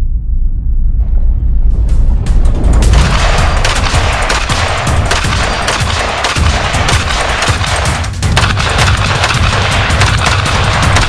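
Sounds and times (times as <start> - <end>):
rifle firing rapidly: 3.0 - 11.0.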